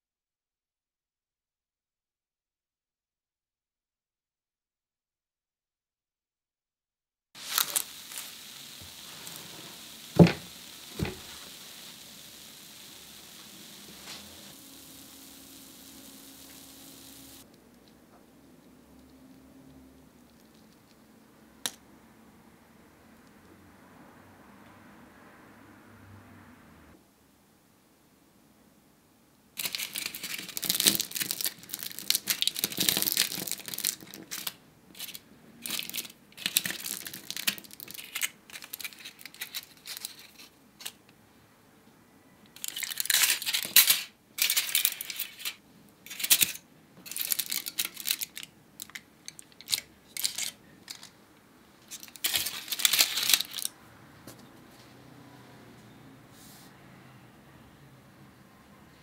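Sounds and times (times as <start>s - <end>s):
foil baking cups crinkling: 7.4s - 17.4s, 29.6s - 41.0s, 42.6s - 51.2s, 51.8s - 53.7s.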